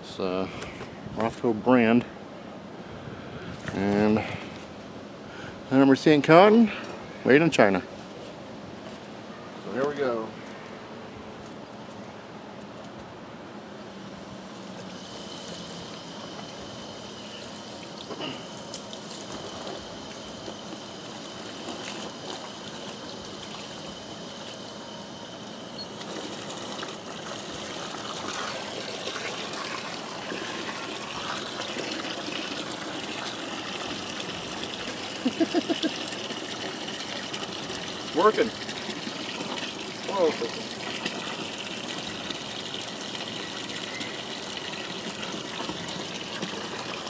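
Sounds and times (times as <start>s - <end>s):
hose water splashing into bucket: 17.7s - 24.7s, 25.9s - 47.0s.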